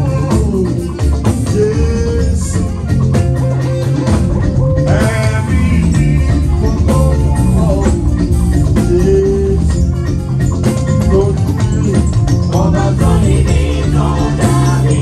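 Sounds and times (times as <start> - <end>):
people singing: 0.0 - 2.8, 4.8 - 9.8, 11.1 - 15.0
band playing praise music: 0.0 - 15.0
hand percussion: 0.0 - 15.0.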